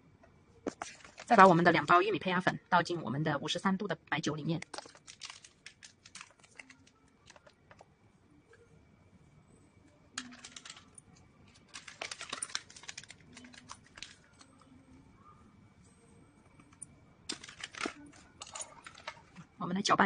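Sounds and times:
paper sachet crinkling: 0.7s - 1.8s, 4.6s - 7.8s, 10.2s - 14.8s, 17.3s - 19.4s.

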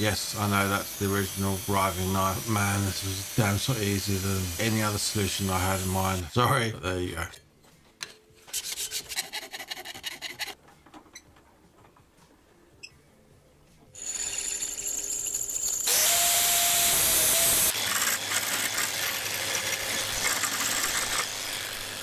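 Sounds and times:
drill boring through steel: 0.2s - 6.3s, 14.0s - 22.0s
jigsaw cutting steel: 0.3s - 6.3s, 14.0s - 22.0s
file rasping on steel: 8.5s - 10.6s.

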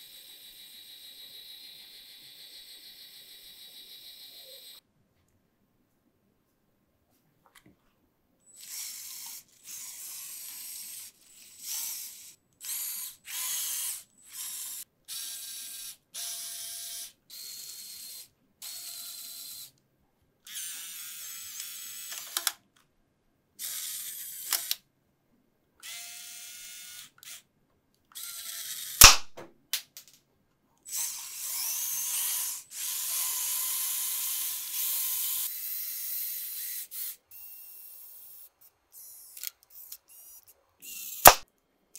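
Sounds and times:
toy motors whirring: 0.0s - 4.8s, 8.5s - 19.8s, 20.5s - 22.6s, 23.6s - 24.8s, 25.8s - 27.5s, 28.1s - 29.2s, 30.8s - 41.5s
sharp loud snap: 29.0s - 29.5s, 41.2s - 41.4s.

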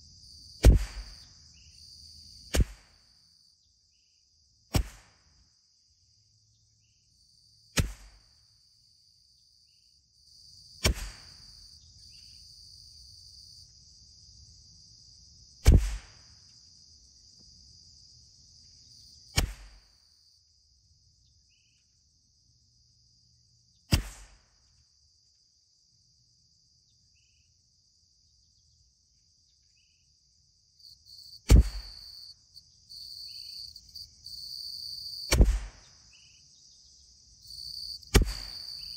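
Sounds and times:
insects chirring: 0.0s - 4.5s, 5.8s - 15.7s, 16.3s - 20.4s, 25.0s - 38.9s
rifle shots: 31.5s - 32.0s, 38.1s - 38.8s.

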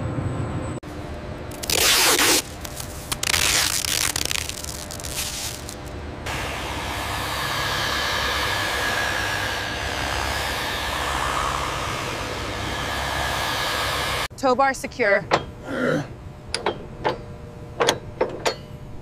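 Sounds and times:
tape ripping off roll: 1.5s - 5.9s
rotary polisher whirring: 5.1s - 14.3s.

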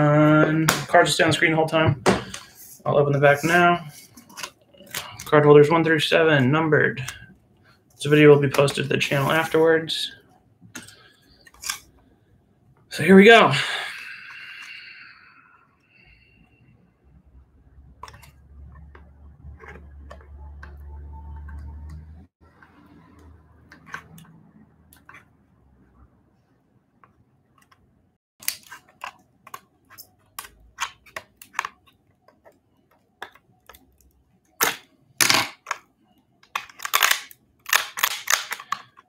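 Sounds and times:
shears cracking hard plastic: 33.2s - 35.8s, 36.4s - 39.0s.

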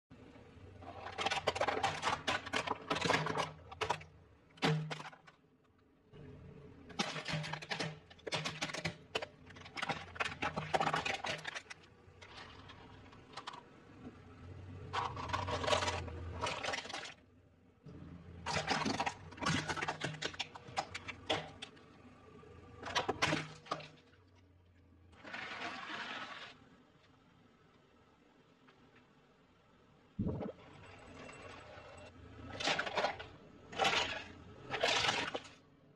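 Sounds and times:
low hum: 30.1s - 32.5s.

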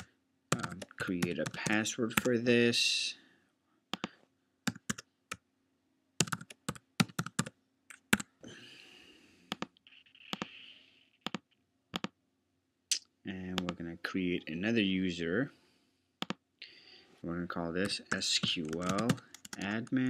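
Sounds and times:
keyboard typing: 0.0s - 2.4s, 4.7s - 5.4s, 6.2s - 8.3s, 9.5s - 10.6s, 11.2s - 12.2s, 16.2s - 16.4s, 17.8s - 20.0s.

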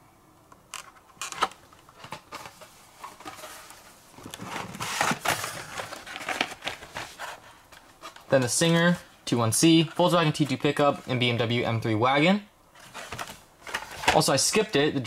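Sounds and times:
packaging crinkling and rustling: 0.8s - 9.1s, 12.7s - 14.7s.

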